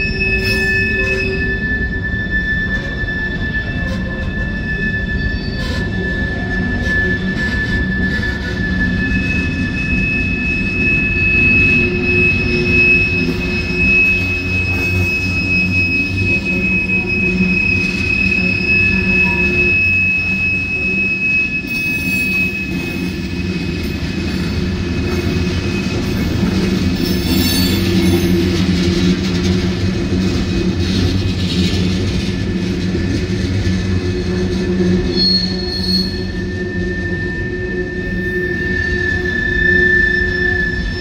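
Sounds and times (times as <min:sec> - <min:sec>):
high wheel squeal: 0:00.0 - 0:41.0
train wheels rumbling on rail: 0:00.0 - 0:41.0.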